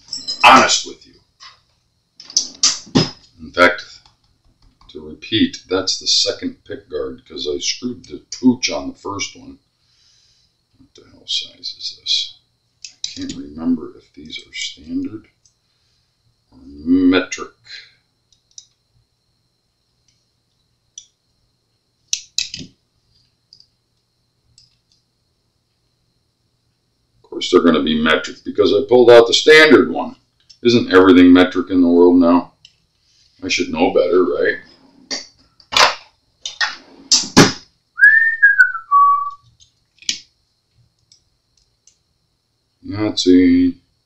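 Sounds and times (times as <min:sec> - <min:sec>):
hand tools clicking and clattering: 0:00.0 - 0:00.6
man whistling: 0:38.0 - 0:39.4.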